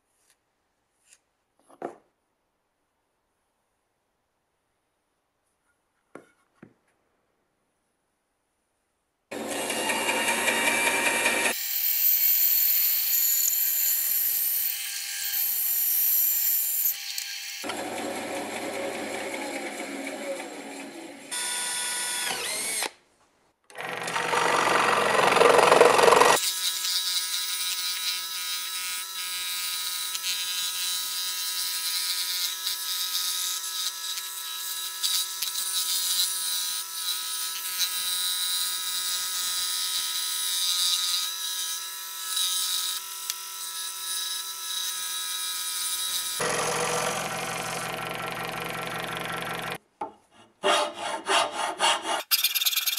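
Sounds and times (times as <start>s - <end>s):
band saw cutting wood: 9.3s - 22.9s, 23.7s - 49.8s, 50.6s - 52.7s
power tool noise: 9.3s - 23.0s, 23.7s - 49.8s
scroll saw cutting wood: 9.3s - 23.0s, 23.7s - 49.8s, 50.4s - 52.9s.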